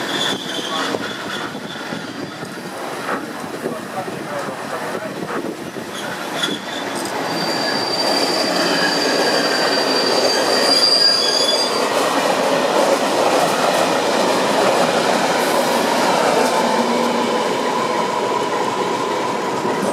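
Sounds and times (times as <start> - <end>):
high wheel squeal: 0.0 - 2.5, 5.9 - 12.0
train wheels rumbling on rail: 0.0 - 19.9.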